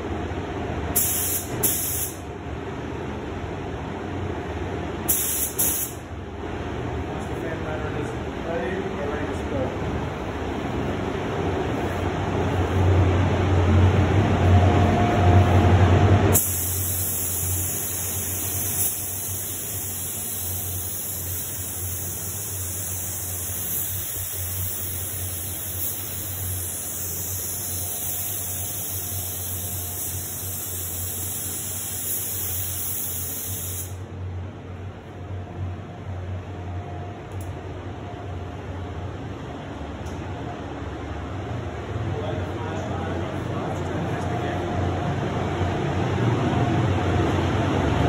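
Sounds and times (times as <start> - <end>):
steady low hum: 0.0 - 48.0
spray gun air hissing: 0.9 - 2.2, 5.0 - 6.0, 16.3 - 34.0.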